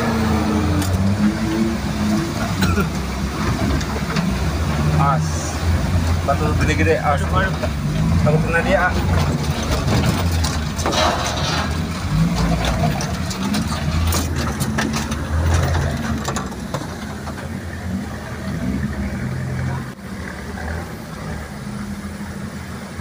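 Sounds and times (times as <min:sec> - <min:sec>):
engine running at low revs: 0:00.0 - 0:23.0
knocks and rattles: 0:06.0 - 0:17.9.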